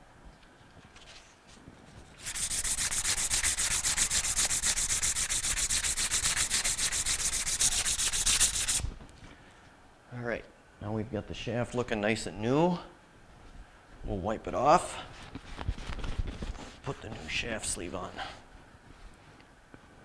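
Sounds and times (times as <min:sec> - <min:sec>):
emery cloth rasping on metal shaft: 0:02.2 - 0:08.8.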